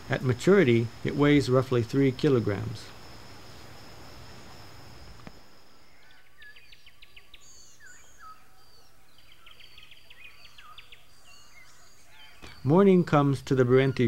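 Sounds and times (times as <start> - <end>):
low background hiss: 0.0 - 14.0
birds chirping and whistling: 5.6 - 12.9.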